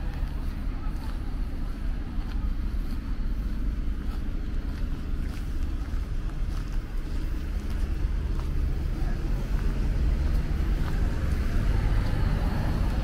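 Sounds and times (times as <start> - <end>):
low rumble of town ambience: 0.0 - 13.0.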